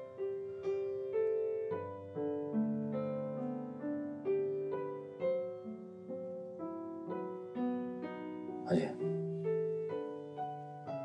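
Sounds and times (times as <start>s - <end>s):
slow piano melody: 0.0s - 11.0s.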